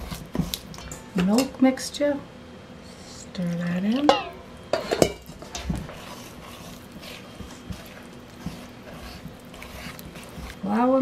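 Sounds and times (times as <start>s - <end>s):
spatula stirring batter in bowl: 0.0s - 0.8s, 4.8s - 11.0s.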